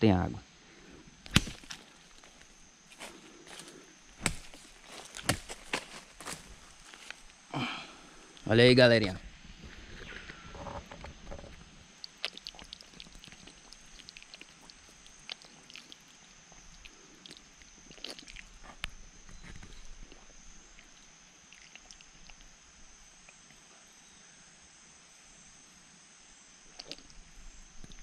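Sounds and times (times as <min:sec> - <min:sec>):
high-pitched insect drone: 0:00.0 - 0:28.0
small mouth clicks: 0:12.0 - 0:19.0, 0:19.7 - 0:22.5, 0:23.2 - 0:23.6, 0:26.7 - 0:27.2.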